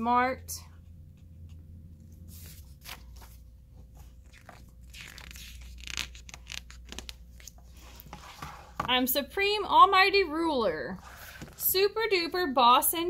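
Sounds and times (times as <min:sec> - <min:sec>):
book page turning: 0:01.4 - 0:08.9, 0:11.0 - 0:11.6
paper handling: 0:01.4 - 0:08.9.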